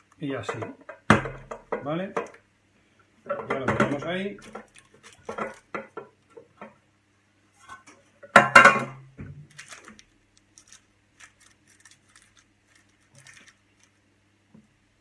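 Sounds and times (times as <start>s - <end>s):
kitchenware clattering: 3.2s - 6.7s, 7.7s - 9.1s.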